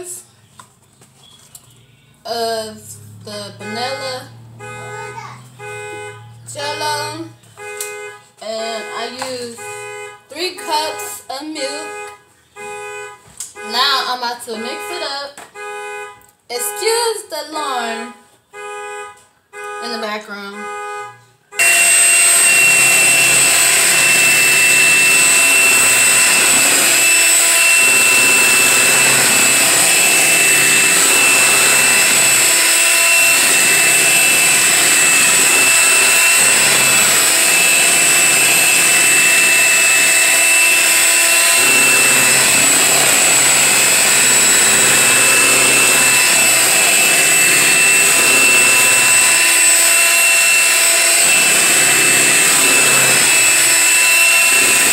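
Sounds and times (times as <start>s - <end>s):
electric hand mixer whisking: 21.6s - 54.9s.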